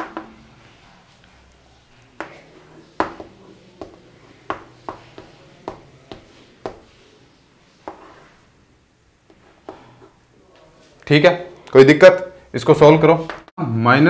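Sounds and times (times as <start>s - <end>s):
chalk tapping on a chalkboard: 3.0s - 7.0s, 7.8s - 8.3s, 9.3s - 10.1s.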